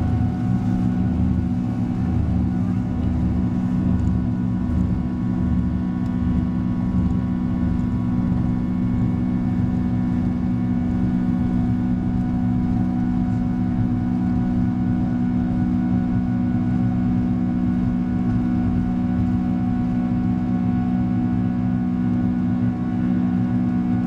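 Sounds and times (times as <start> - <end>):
jet engines in cabin: 0.0 - 24.0.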